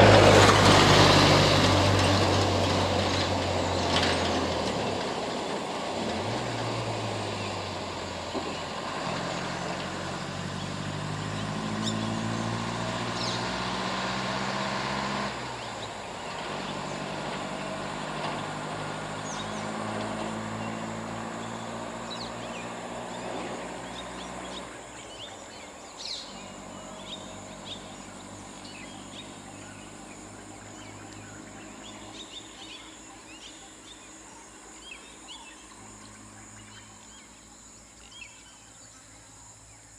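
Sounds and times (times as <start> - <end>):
truck engine driving away: 0.0 - 38.5
birds chirping: 7.2 - 14.3, 15.4 - 39.9.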